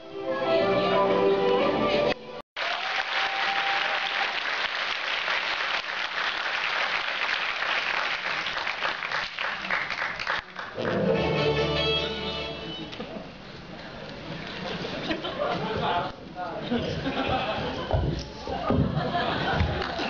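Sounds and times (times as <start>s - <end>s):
music: 0.0s - 2.4s, 10.8s - 13.0s
audience applauding: 2.6s - 11.1s, 19.4s - 20.0s.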